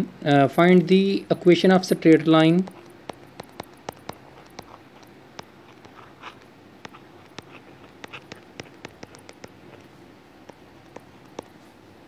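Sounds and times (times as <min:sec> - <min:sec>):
stylus tapping on glass screen: 0:02.6 - 0:11.6.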